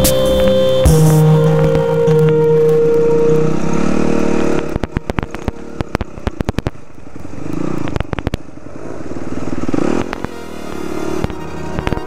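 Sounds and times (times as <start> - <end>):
dirt bike engine revving: 0.0 - 6.2.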